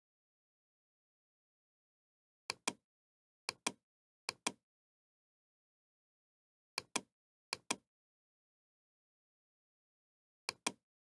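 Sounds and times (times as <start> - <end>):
computer mouse clicks: 2.5 - 2.8, 3.5 - 4.6, 6.8 - 7.8, 10.5 - 10.8.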